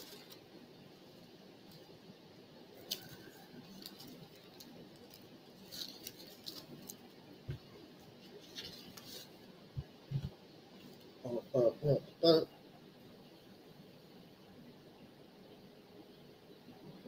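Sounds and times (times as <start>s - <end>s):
low room noise: 0.0s - 17.0s
soft rustles: 2.8s - 11.1s.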